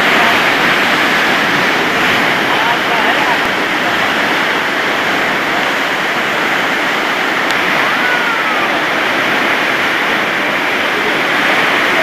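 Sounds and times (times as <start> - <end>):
churning white water rushing: 0.0 - 12.0.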